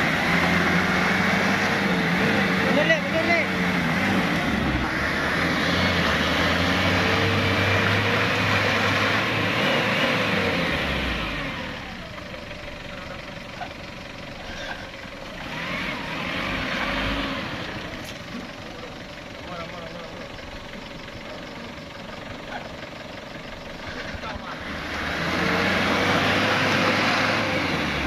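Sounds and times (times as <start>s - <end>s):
truck engine revving hard: 0.0s - 12.2s, 14.5s - 18.6s, 23.8s - 28.0s.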